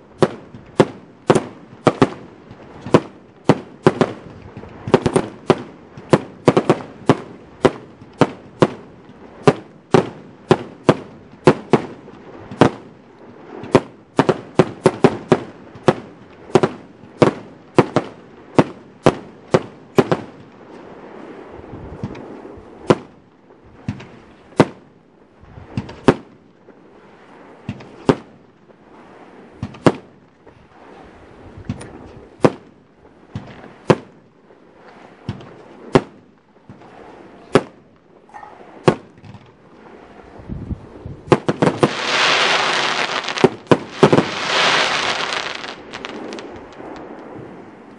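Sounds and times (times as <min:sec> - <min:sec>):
fireworks firing shots: 0:00.0 - 0:21.2, 0:22.0 - 0:23.2, 0:23.8 - 0:25.0, 0:25.6 - 0:26.5, 0:27.5 - 0:28.4, 0:29.6 - 0:30.2, 0:31.7 - 0:34.2, 0:34.8 - 0:37.9, 0:38.6 - 0:39.6, 0:41.3 - 0:47.4
firework hiss: 0:41.4 - 0:46.6.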